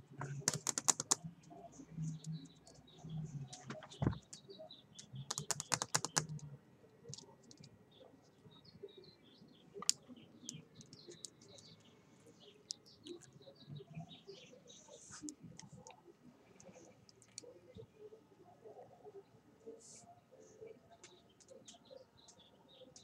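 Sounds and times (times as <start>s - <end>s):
faint bird chirps: 0.0s - 23.0s.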